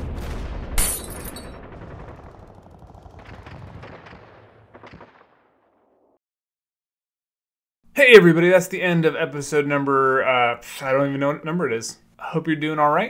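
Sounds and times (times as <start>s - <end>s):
gunshot bang: 0.0s - 2.4s, 3.2s - 5.8s
scattered gunshots: 0.0s - 5.6s.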